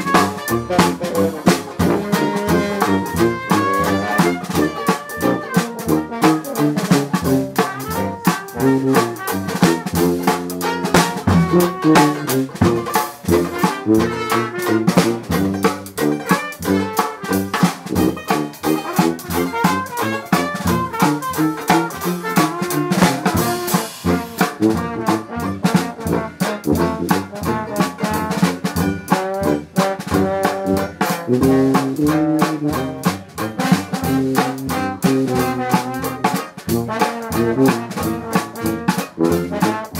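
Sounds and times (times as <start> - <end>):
jazz band playing: 0.0 - 39.9
trombone: 0.0 - 39.9
strummed banjo: 9.5 - 20.9, 25.7 - 37.8.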